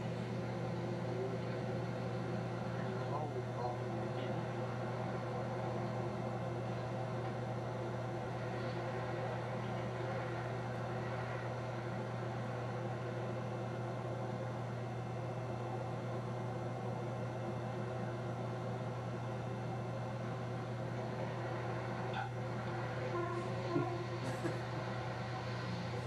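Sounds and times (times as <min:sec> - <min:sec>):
constant low hum: 0:00.0 - 0:26.0.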